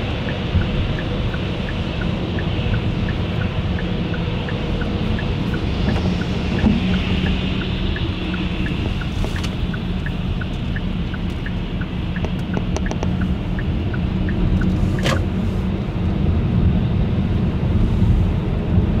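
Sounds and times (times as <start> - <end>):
turn signal ticking: 0.0 - 15.4
road and engine rumble: 0.0 - 19.0.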